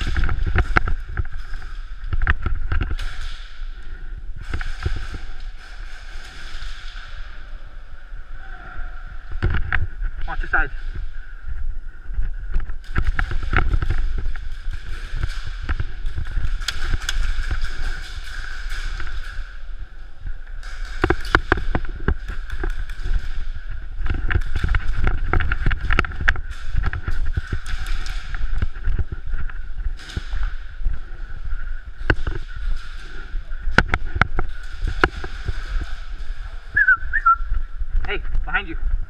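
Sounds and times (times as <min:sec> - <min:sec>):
pellets hitting plywood walls: 0:12.8 - 0:19.8, 0:20.6 - 0:31.1.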